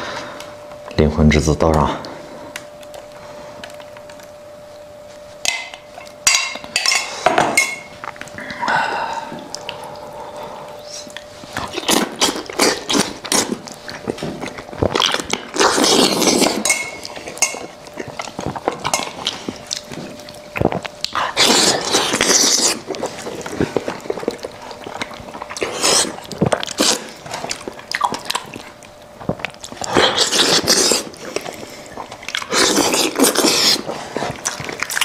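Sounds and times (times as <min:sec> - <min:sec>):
faint steady hum: 0:00.0 - 0:35.0
wet chewing and tearing: 0:09.4 - 0:35.0.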